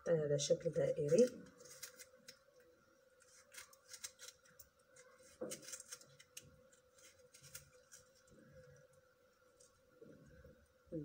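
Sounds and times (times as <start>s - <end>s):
faint steady hum: 0.0s - 11.0s
knife slicing tomato: 3.2s - 8.2s.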